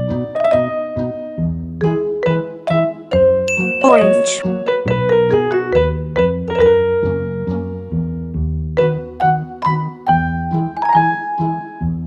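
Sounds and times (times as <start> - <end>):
keyboard melody: 2.0 - 6.9.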